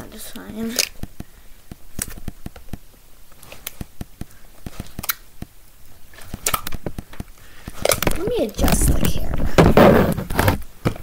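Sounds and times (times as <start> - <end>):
slime clicking and squelching: 0.7 - 9.2.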